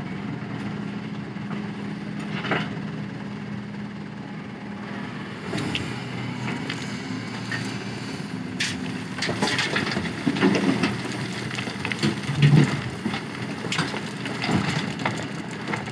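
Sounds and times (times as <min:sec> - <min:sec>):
diesel engines running: 0:00.0 - 0:15.9
stones pouring into truck bed: 0:09.3 - 0:13.0.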